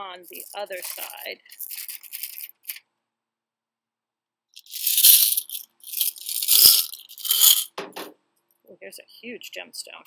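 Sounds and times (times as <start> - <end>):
glass gemstones rattling and clinking: 0.3 - 2.8, 4.6 - 7.8.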